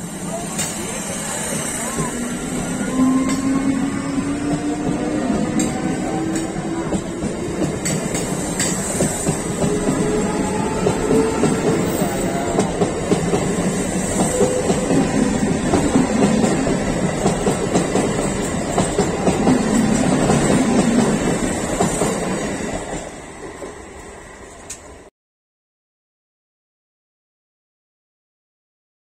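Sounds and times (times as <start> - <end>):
train wheels clattering over rail joints: 4.5 - 23.8.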